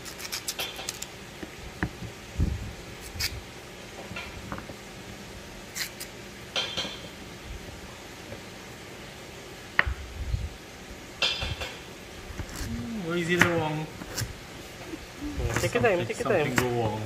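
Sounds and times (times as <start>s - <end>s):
knife scraping carrot: 0.0s - 1.1s, 3.0s - 3.4s, 5.7s - 6.2s, 12.4s - 14.3s.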